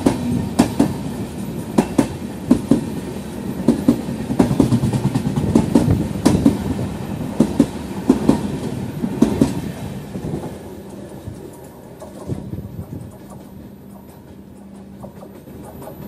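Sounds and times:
train rumble: 0:00.0 - 0:16.0
train wheels clicking over rail joints: 0:00.0 - 0:16.0.

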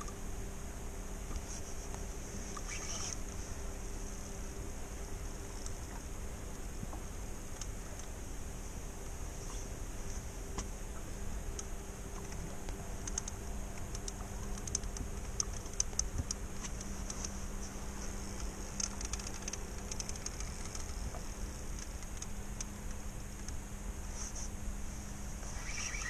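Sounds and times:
low hum: 0:00.0 - 0:26.0
fishing reel clicking: 0:02.6 - 0:03.2, 0:18.7 - 0:21.0, 0:25.5 - 0:26.0.

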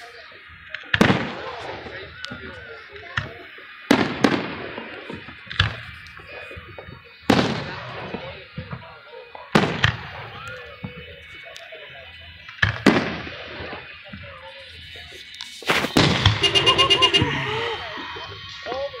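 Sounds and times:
firework shells booming: 0:09.5 - 0:10.9, 0:12.5 - 0:13.8, 0:15.6 - 0:17.8.

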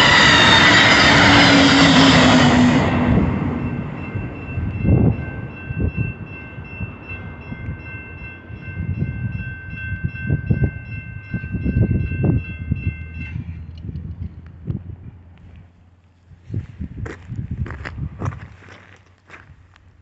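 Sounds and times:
crossing bell ringing: 0:00.0 - 0:13.7
wind buffeting microphone: 0:00.0 - 0:15.7, 0:16.3 - 0:19.7
train rumble: 0:00.0 - 0:20.0.

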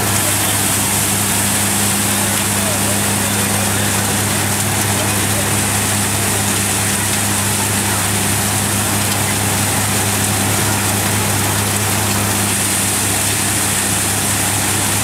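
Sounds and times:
thresher running: 0:00.0 - 0:15.0.

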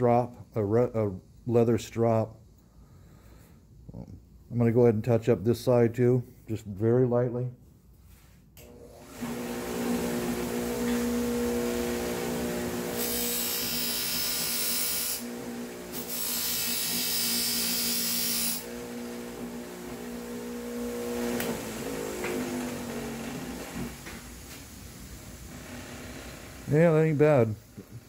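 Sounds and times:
buffing motor humming: 0:08.7 - 0:24.2
blade whirring on buffing wheel: 0:09.0 - 0:24.1.

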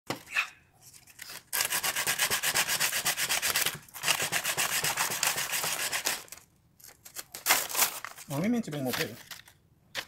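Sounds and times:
sandpaper rubbing wood: 0:01.6 - 0:06.3.

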